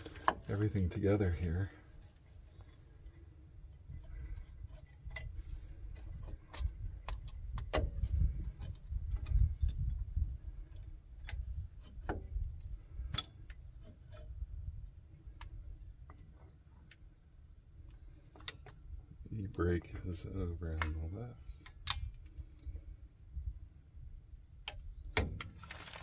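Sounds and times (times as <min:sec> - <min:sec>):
bird chirp: 0:00.4 - 0:09.6, 0:15.3 - 0:17.4, 0:19.3 - 0:21.6, 0:22.4 - 0:23.2.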